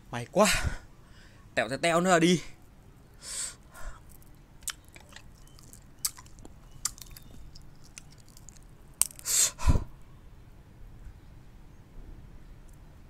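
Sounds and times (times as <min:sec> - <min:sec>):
candy cracking and snapping: 0:04.0 - 0:09.4
loud breathy gasp: 0:09.3 - 0:09.9.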